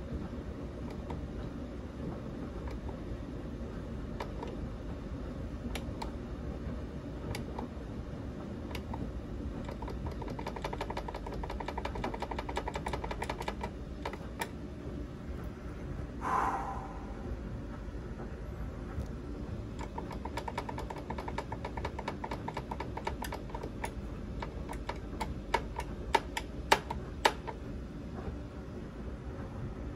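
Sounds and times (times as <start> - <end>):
steady low hum: 0.0 - 29.9
relays clicking: 7.3 - 7.7, 8.6 - 14.6, 19.0 - 27.6.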